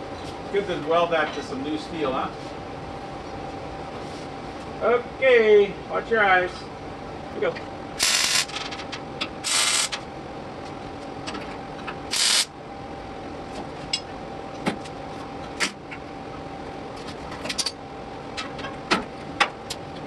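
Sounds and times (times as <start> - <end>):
faint steady hum: 0.0 - 20.0
welding crackling hiss: 8.0 - 8.6, 9.4 - 10.0, 12.1 - 12.5.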